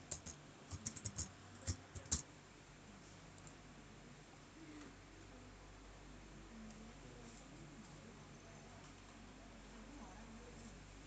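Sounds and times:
computer keyboard typing: 0:00.0 - 0:02.2.

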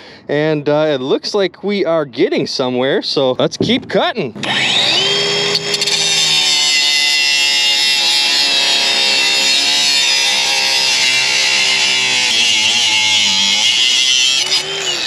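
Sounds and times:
angle grinder cutting metal: 0:04.4 - 0:15.0.

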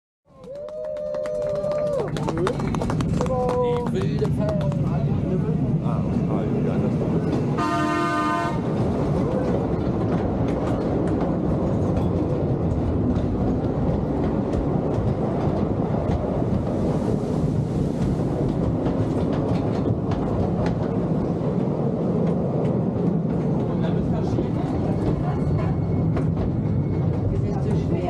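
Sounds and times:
roller coaster rumbling on track: 0:00.3 - 0:28.0
wheel and track clacks: 0:08.8 - 0:27.9.

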